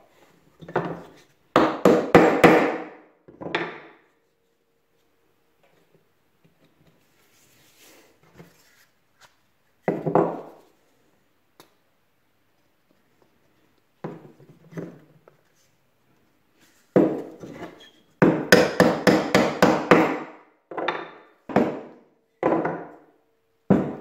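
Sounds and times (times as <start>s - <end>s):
hammer striking wooden blocks: 1.6s - 4.0s, 17.0s - 17.4s, 18.2s - 23.1s, 23.7s - 24.0s.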